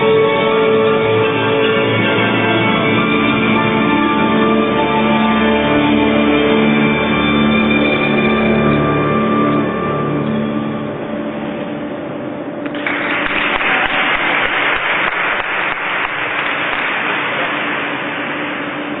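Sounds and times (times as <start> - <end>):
audience applause: 12.6 - 19.0.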